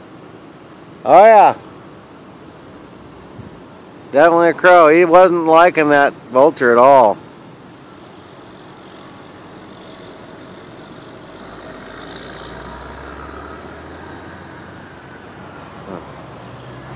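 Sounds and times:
outdoor background noise: 0.0s - 16.9s
distant engine rumble: 8.0s - 16.9s.

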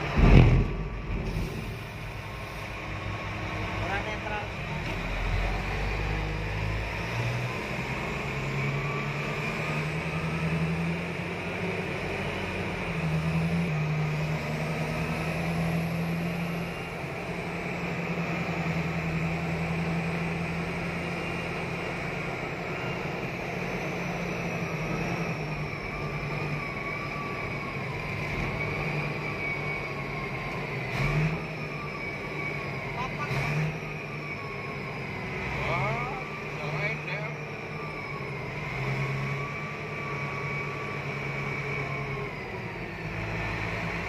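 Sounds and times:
truck diesel engine drone: 0.0s - 44.0s.

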